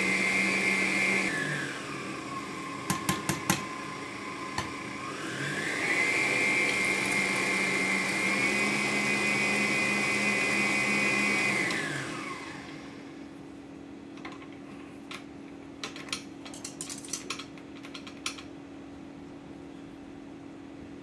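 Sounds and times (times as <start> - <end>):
stand mixer whisking: 0.0 - 13.1.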